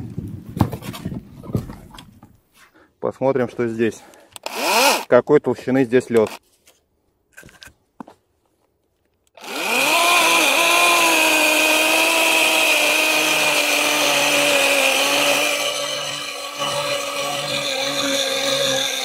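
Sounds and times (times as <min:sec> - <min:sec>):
electric chainsaw cutting ice: 0:04.4 - 0:05.1, 0:09.4 - 0:19.0.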